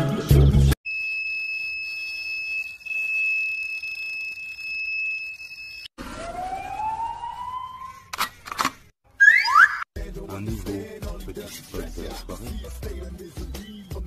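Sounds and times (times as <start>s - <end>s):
bite alarm high tone: 9.2s - 10.0s.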